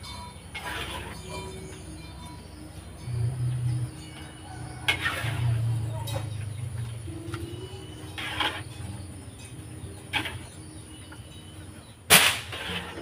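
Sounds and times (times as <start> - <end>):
low hum: 0.0 - 13.0
metal clack: 12.1 - 13.0.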